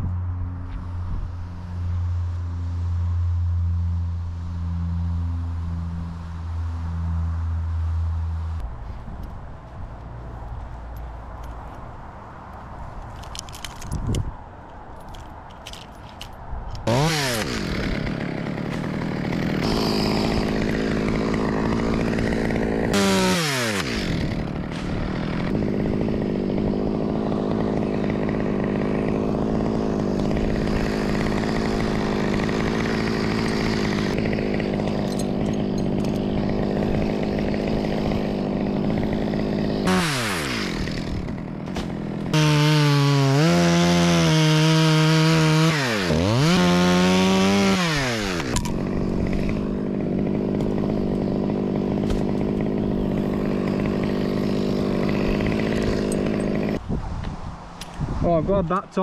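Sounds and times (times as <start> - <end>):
chainsaw cutting wood: 13.2 - 14.2, 15.1 - 56.9.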